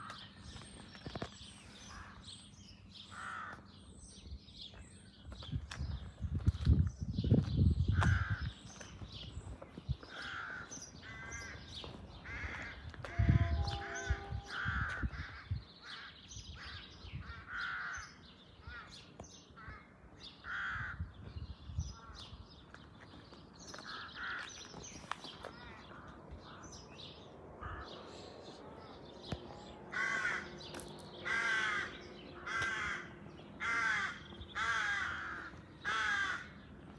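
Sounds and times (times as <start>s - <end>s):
crows cawing: 1.8s - 2.3s, 3.1s - 3.7s, 7.9s - 8.6s, 10.0s - 19.0s, 19.6s - 21.1s, 23.8s - 24.7s, 25.4s - 26.8s, 27.6s - 28.3s, 29.9s - 36.7s.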